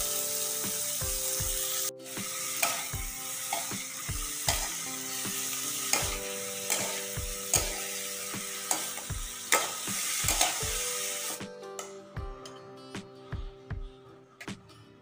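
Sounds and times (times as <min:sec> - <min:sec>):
vegetables sizzling in a wok: 0:00.0 - 0:11.4
metal spatula scraping a wok: 0:05.8 - 0:11.4.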